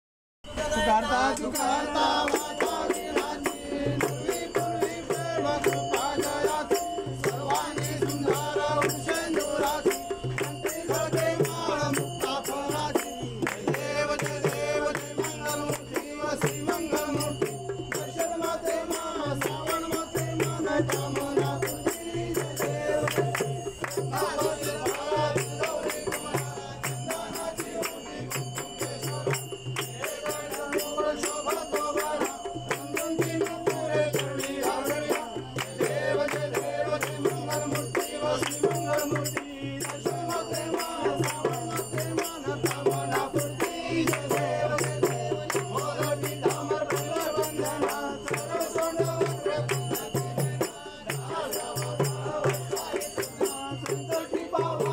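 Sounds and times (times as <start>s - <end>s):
men singing in unison: 0.4s - 54.9s
rhythmic hand clapping: 1.2s - 54.9s.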